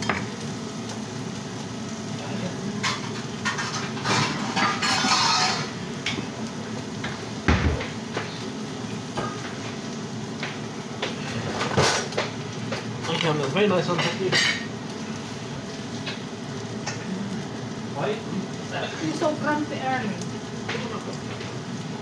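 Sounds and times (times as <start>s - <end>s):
dishes and utensils clinking: 2.8s - 6.3s, 11.0s - 14.7s.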